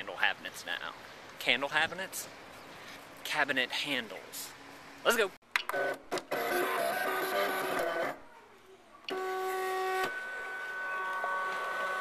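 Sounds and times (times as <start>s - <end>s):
small electric machine whirring: 9.1s - 12.0s.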